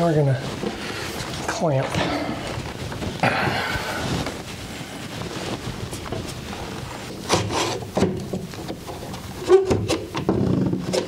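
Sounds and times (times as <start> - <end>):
clamp handling and rubbing: 7.0 - 11.0.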